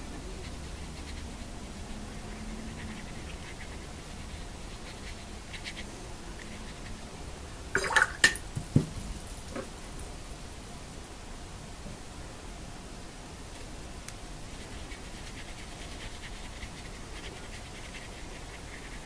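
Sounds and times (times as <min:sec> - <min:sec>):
sharp knocks and taps: 0:08.2 - 0:09.0
paintbrush dabbing on paper: 0:14.5 - 0:19.0.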